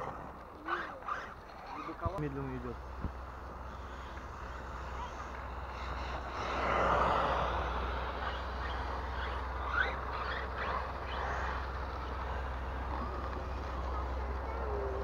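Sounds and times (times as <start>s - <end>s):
rising motor whines: 0.0s - 15.0s
steady low rumble: 0.0s - 15.0s
toy truck motors whirring: 0.0s - 15.0s.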